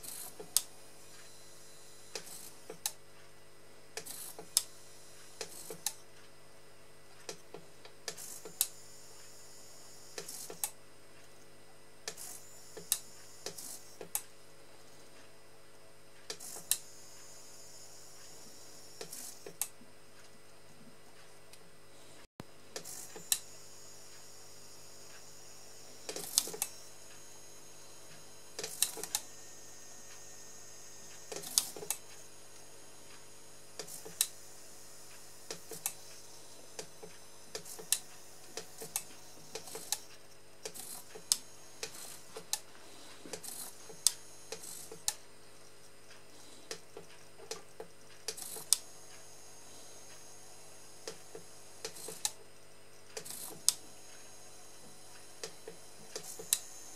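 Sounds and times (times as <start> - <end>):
servo buzzing whirs: 0.0 - 3.0, 4.0 - 6.0, 8.1 - 10.8, 12.1 - 14.3, 16.3 - 19.7, 22.8 - 45.2, 48.3 - 52.4, 53.1 - 56.9.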